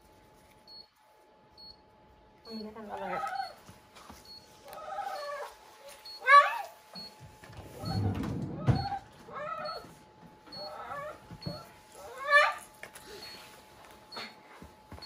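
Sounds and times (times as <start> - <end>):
dog whining: 3.0 - 3.6, 4.6 - 7.1, 7.7 - 13.4.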